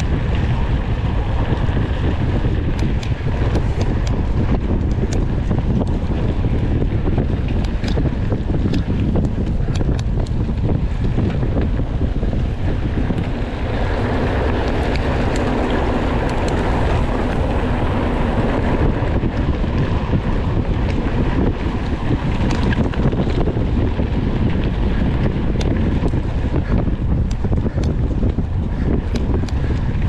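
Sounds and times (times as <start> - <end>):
wind rushing over microphone: 0.0 - 30.0
small clicks and rattles: 2.5 - 11.7, 20.8 - 23.6.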